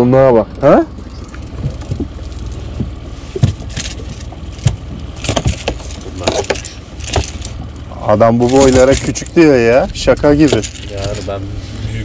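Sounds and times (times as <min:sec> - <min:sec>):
boat engine rumble: 0:00.0 - 0:12.0
rustling scrapes: 0:01.1 - 0:07.7, 0:08.4 - 0:12.0
knocks and thuds on deck: 0:02.8 - 0:03.8.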